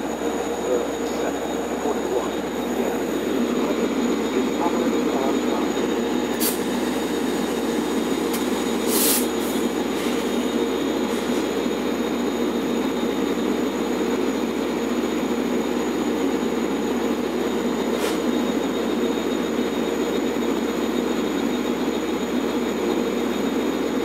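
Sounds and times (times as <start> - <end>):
diesel locomotive engine drone: 0.0 - 24.0
short air hisses: 6.4 - 6.8, 8.4 - 10.3, 18.0 - 18.3.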